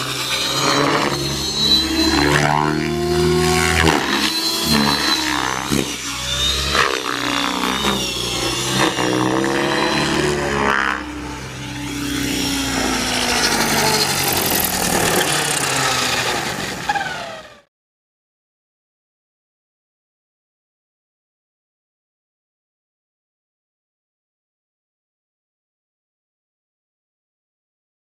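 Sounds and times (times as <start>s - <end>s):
rc helicopter motor whine: 0.0s - 17.7s.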